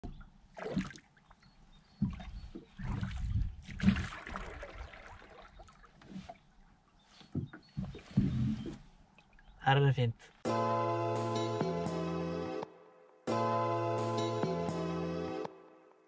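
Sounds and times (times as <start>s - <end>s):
oars splashing in water: 0.0s - 9.6s
oars knocking in oarlocks: 2.0s - 3.0s, 7.2s - 8.9s.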